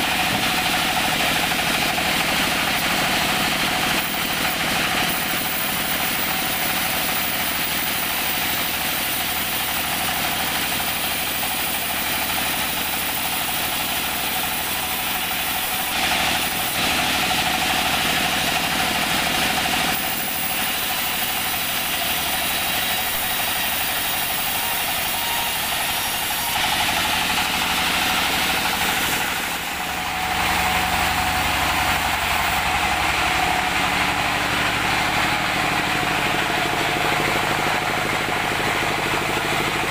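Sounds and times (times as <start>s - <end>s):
band saw whining: 0.0s - 39.9s
deeper machine hum: 24.8s - 39.9s.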